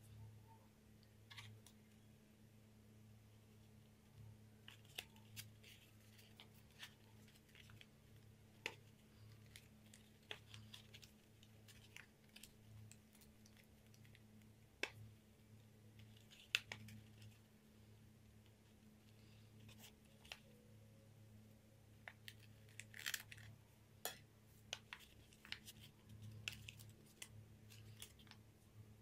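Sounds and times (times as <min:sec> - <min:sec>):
faint low hum: 0:00.0 - 0:29.0
paper crinkling: 0:04.6 - 0:14.2, 0:22.0 - 0:23.5, 0:24.7 - 0:28.4.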